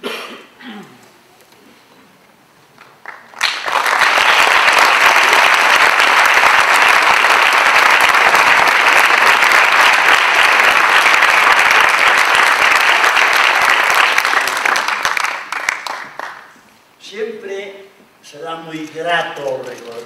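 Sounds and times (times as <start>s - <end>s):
audience applause: 2.8s - 16.5s.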